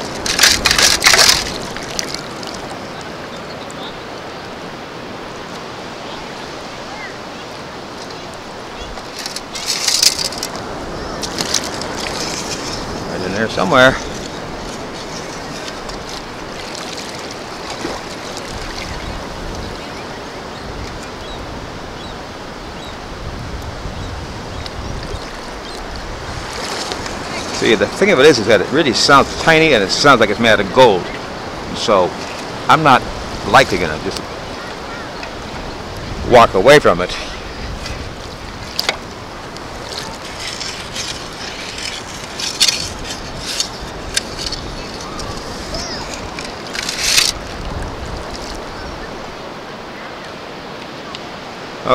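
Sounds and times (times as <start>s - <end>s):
sand scoop in water: 0.0s - 2.8s, 9.0s - 19.7s, 26.3s - 30.8s, 36.6s - 48.8s
surf water sloshing around legs: 0.0s - 23.3s, 24.3s - 51.9s
wind on microphone: 5.0s - 28.0s, 30.6s - 50.4s.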